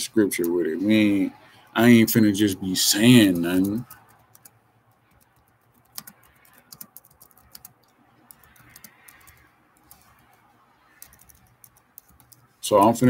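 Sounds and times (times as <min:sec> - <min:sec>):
laptop keyboard typing: 0:03.0 - 0:13.0.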